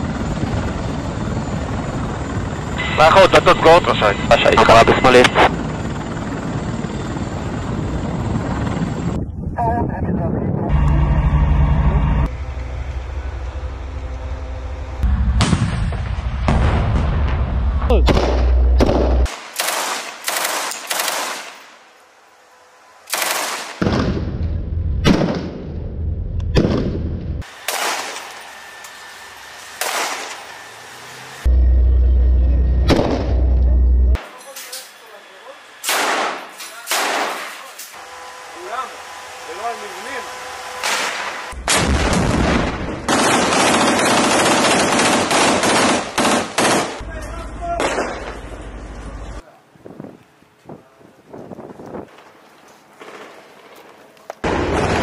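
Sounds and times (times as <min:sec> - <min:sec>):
rifle gunfire: 0:18.1 - 0:21.6, 0:23.1 - 0:24.2, 0:27.7 - 0:28.2, 0:29.8 - 0:30.3, 0:35.8 - 0:37.5, 0:40.8 - 0:47.0
machine gun bursts: 0:19.4 - 0:21.6, 0:43.1 - 0:47.0.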